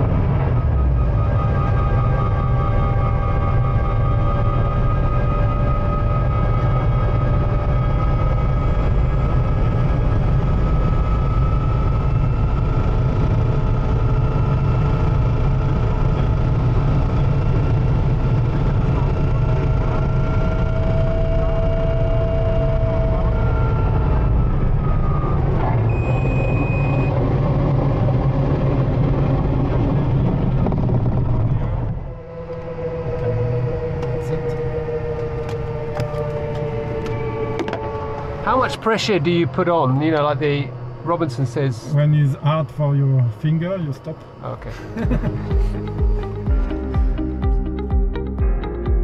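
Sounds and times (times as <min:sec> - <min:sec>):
helicopter engine rumble: 0:00.0 - 0:49.0
whining tones: 0:00.0 - 0:49.0
short high beep: 0:25.9 - 0:27.1.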